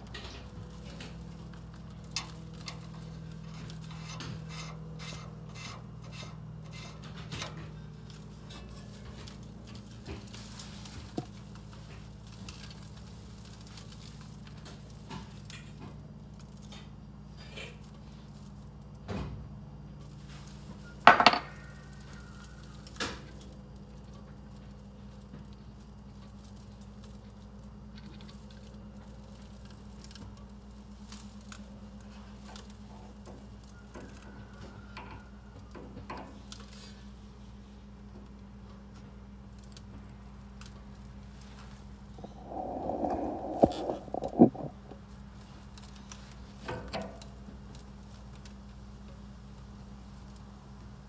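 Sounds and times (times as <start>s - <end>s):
steady low hum: 41.9s - 45.2s.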